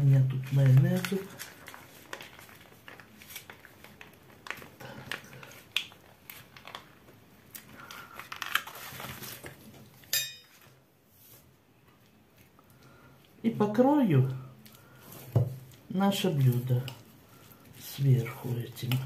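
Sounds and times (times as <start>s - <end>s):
plastic sachet crinkling and squelching: 0.0s - 10.1s, 14.6s - 19.0s
tableware clink: 10.1s - 10.6s.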